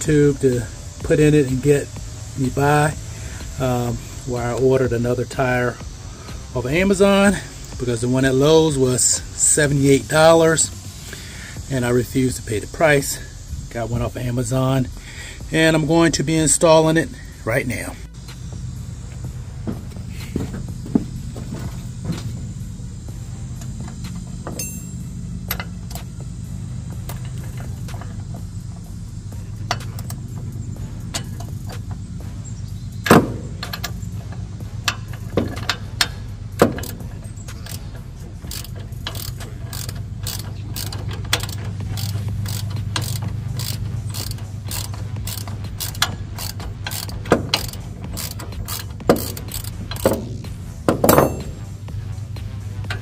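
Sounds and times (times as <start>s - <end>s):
steady low hum: 0.0s - 53.0s
metal tools knocking on wood: 19.7s - 22.3s, 35.2s - 35.8s, 44.8s - 51.7s
ratchet wrench clicking: 23.0s - 51.7s.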